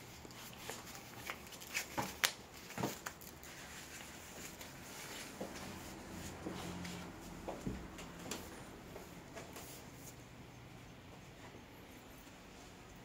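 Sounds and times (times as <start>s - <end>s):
faint low hum: 3.3s - 13.0s.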